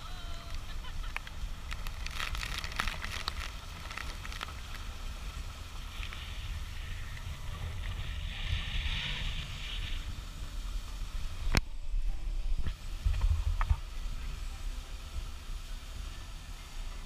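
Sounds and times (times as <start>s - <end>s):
brief hiss: 0.0s - 11.7s
scattered crackles: 0.0s - 11.7s
boat low rumble: 0.0s - 17.0s.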